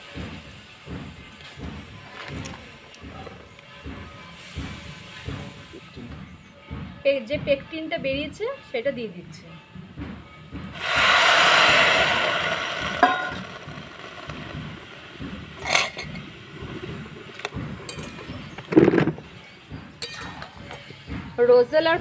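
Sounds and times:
liquid hissing in hot pan: 4.3s - 5.9s, 10.7s - 19.3s.

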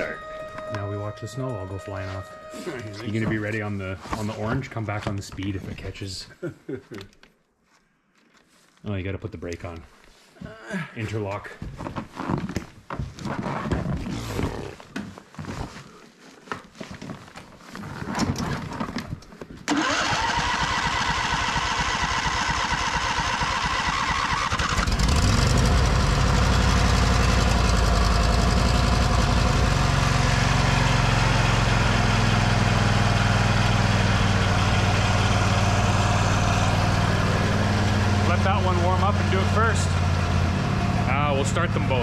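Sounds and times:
electric starter cranking: 19.7s - 29.5s
mower engine running: 19.7s - 42.0s.

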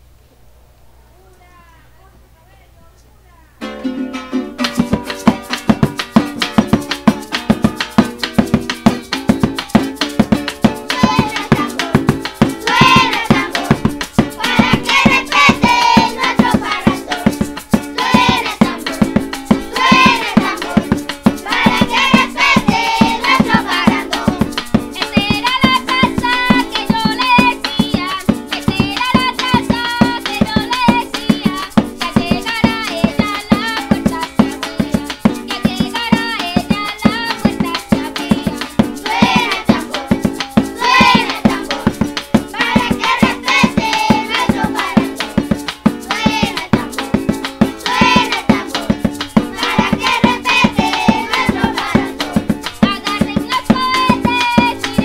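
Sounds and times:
hand drum: 3.6s - 55.0s
maracas shaking: 3.6s - 55.0s
children singing: 10.7s - 34.8s, 35.9s - 45.4s, 46.1s - 55.0s.

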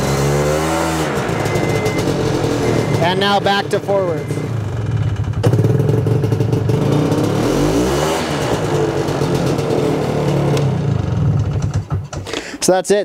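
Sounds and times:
snowmobile two-stroke engine idling: 1.2s - 7.3s.

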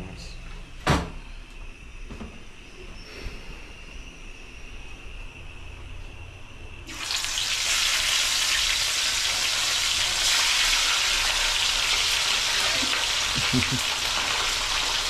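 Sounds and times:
fish sizzling in hot oil: 6.9s - 15.0s.

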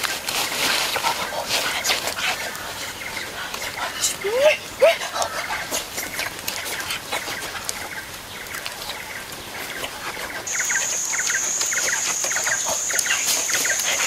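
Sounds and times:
bird double chirps: 10.5s - 14.0s
high-pitched whine: 10.5s - 14.0s.

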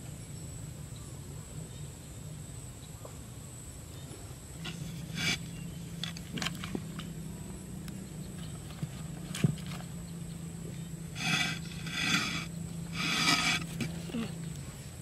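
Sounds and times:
steady low hum: 0.0s - 15.0s
tile clicking and scraping: 11.2s - 13.9s.

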